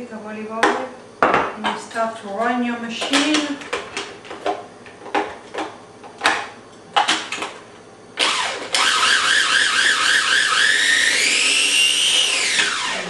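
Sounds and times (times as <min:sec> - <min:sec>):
food processor motor whine: 0:08.2 - 0:13.0.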